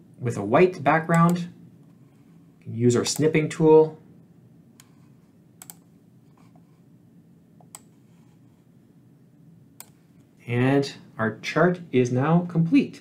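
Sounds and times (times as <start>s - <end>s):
low steady hum: 0.0s - 13.0s
computer mouse clicks: 3.1s - 3.4s, 4.8s - 6.8s, 7.6s - 8.6s, 9.8s - 10.3s.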